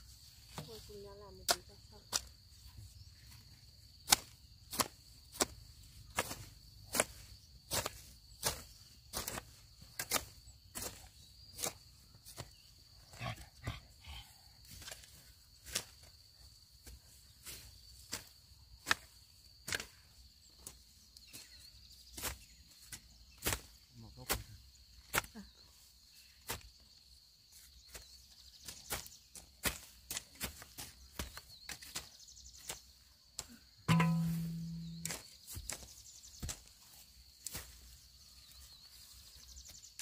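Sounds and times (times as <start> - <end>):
sharp knocks: 33.9 - 35.2.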